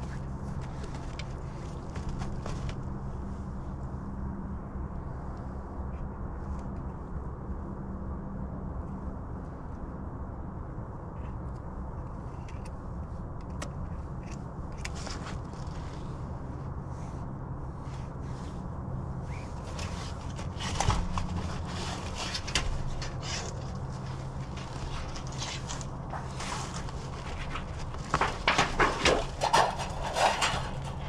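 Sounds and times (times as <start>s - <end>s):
steady low rumble: 0.0s - 31.0s
hand tools scraping and clicking: 19.3s - 31.0s
metal scraping on brick: 19.5s - 31.0s.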